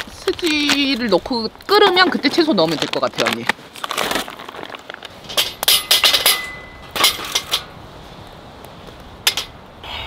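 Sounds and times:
wood and pot knocking on metal grate: 5.3s - 7.6s.

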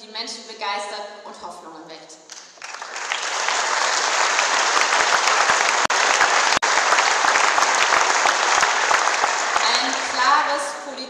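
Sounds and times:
large audience applauding: 2.3s - 10.5s.

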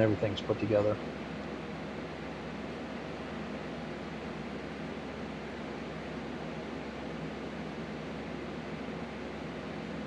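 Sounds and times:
machine hiss with low hum: 0.0s - 10.0s.

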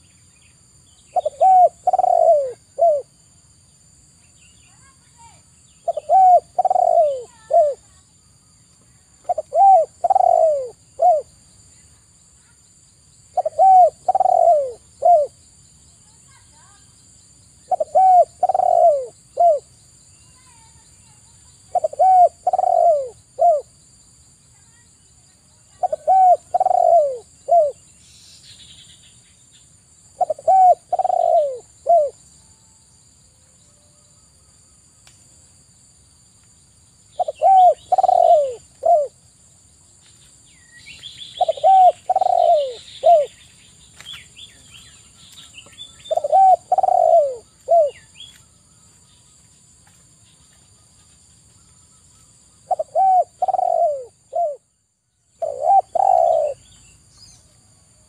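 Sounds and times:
small birds chirping faintly: 0.0s - 58.0s
dove cooing: 1.1s - 3.1s, 5.8s - 8.0s, 9.2s - 11.3s, 13.3s - 15.4s, 17.7s - 19.7s, 21.7s - 23.7s, 25.7s - 27.8s, 30.2s - 32.2s, 37.2s - 39.2s, 41.4s - 43.4s, 46.0s - 48.0s, 52.6s - 54.6s, 55.4s - 56.6s.

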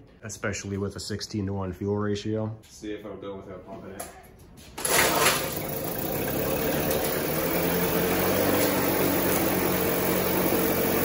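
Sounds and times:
outboard motor running: 4.9s - 11.0s.

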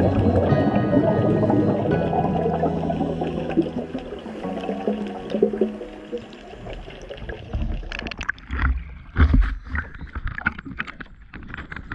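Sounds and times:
muffled underwater sound: 0.0s - 8.0s
water splashing around camera: 0.0s - 11.9s.

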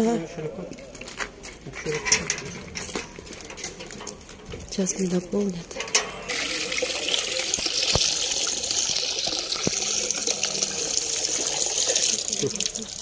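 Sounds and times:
water splashing into basin: 5.9s - 13.0s
water pouring into bottle: 6.2s - 13.0s.

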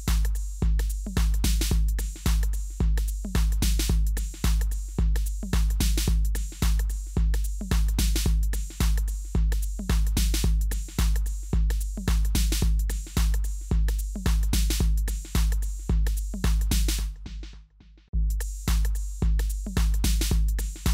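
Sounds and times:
electronic drum beat: 0.0s - 20.9s.

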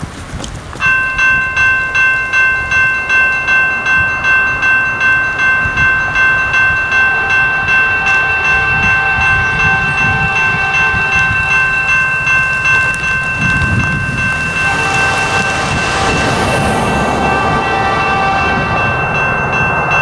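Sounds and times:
electronic crossing bell ringing: 0.8s - 20.0s.

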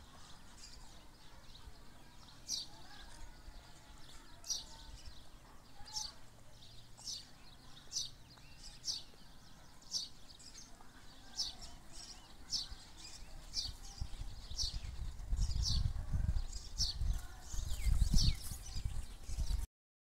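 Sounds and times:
small bird chirping: 0.0s - 19.7s
wind rumble on microphone: 13.3s - 19.7s.

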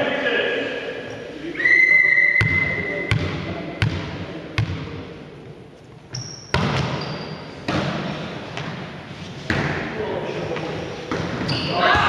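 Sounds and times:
ball bouncing on hall floor: 2.4s - 5.0s, 6.1s - 9.9s, 10.5s - 12.0s
shoe squeaks: 6.1s - 7.6s, 10.8s - 12.0s.

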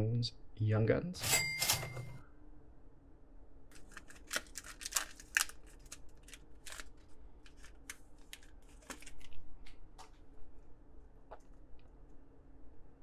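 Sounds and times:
trading cards flipping: 3.7s - 9.8s.

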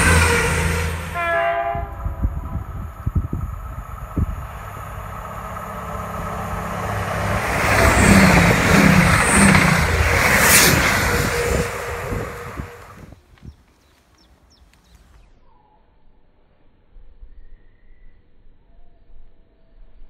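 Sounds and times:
diesel train passing at speed: 0.0s - 13.2s.

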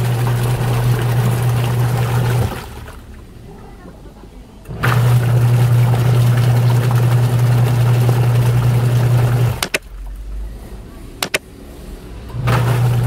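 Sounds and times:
water churning: 0.0s - 3.5s, 4.7s - 10.6s, 12.4s - 13.0s
washing machine motor humming: 0.0s - 13.0s
sharp clicks: 9.6s - 9.9s, 11.2s - 11.5s.

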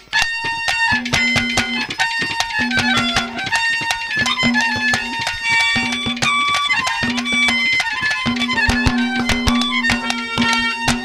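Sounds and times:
fast drum strokes: 0.0s - 11.0s
reedy wind instrument melody: 0.0s - 11.0s.

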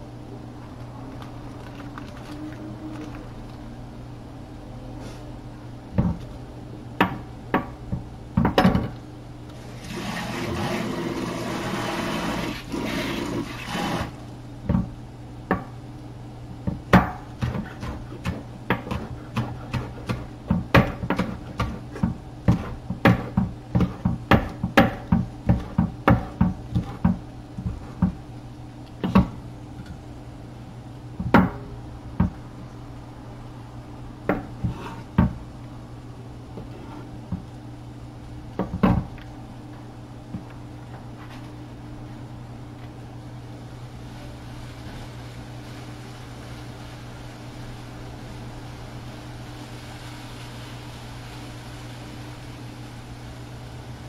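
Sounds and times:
steady low hum: 0.0s - 10.0s, 10.6s - 54.0s
knife chopping on wooden board: 16.7s - 28.2s, 29.0s - 29.4s
hissing rustling noise: 43.9s - 53.9s.

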